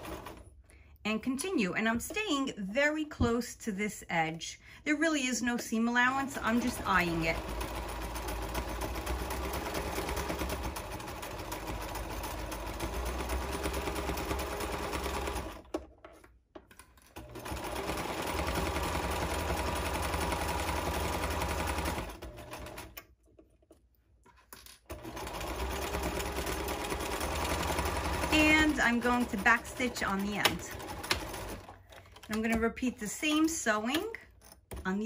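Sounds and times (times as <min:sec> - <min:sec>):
electric sewing machine stitching: 0:00.0 - 0:00.4, 0:06.0 - 0:15.7, 0:17.2 - 0:23.0, 0:24.9 - 0:33.9.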